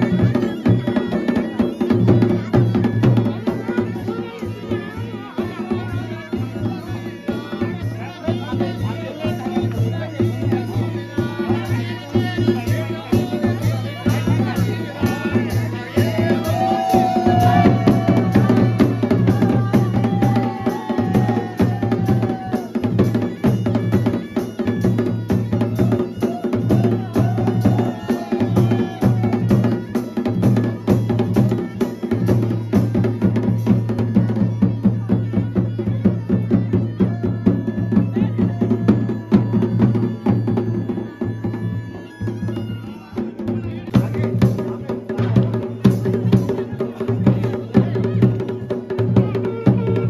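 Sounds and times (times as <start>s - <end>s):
bagpipe drone: 0.0s - 50.0s
drums beaten in fast rhythm: 0.0s - 50.0s.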